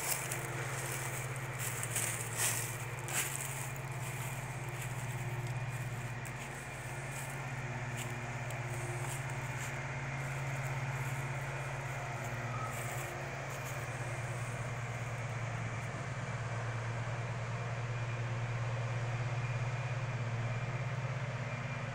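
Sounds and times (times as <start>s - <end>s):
engine idling: 0.0s - 21.9s.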